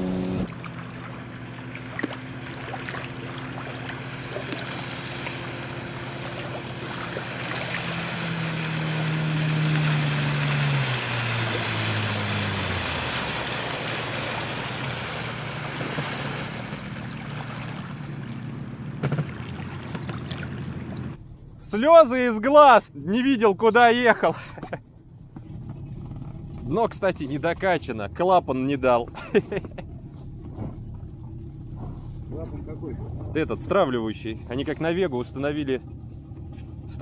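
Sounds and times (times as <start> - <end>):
outboard motor: 0.0 - 37.0
spray hissing off hull: 4.2 - 17.1.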